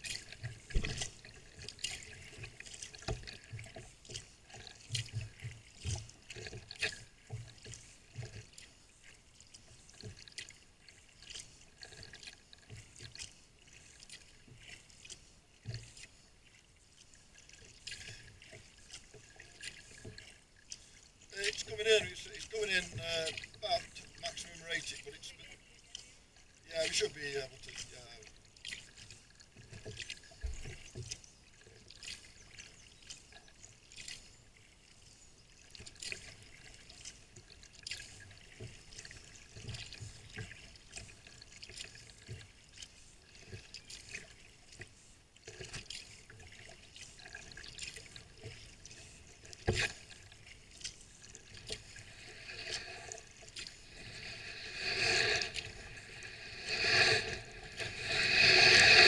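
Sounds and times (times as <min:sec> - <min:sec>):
kayak paddle dipping in water: 0:00.0 - 0:59.0
water dripping and trickling: 0:17.0 - 0:54.0.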